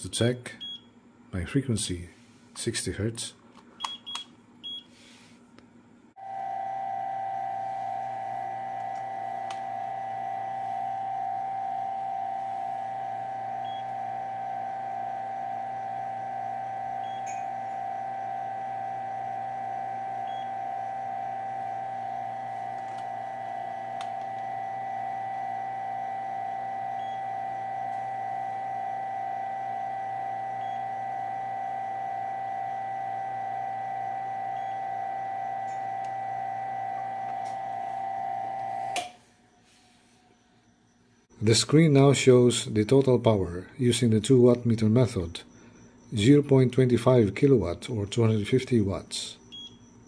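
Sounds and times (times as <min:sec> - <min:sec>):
low hum: 0:06.2 - 0:39.0
high-pitched hum: 0:06.2 - 0:39.1.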